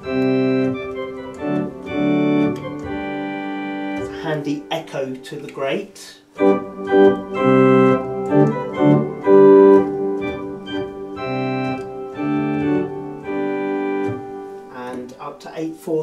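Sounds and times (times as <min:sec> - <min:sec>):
organ playing held chords: 0:00.0 - 0:16.0.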